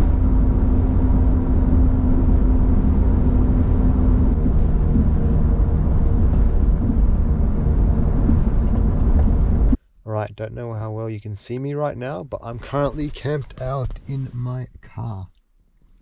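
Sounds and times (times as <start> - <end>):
car engine and road noise: 0.0 - 9.8.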